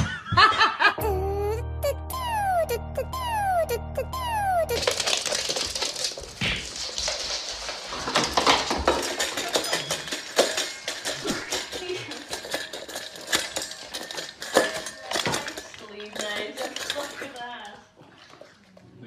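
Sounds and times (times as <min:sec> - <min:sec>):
metal bowl clinking and rattling: 0:04.7 - 0:18.6.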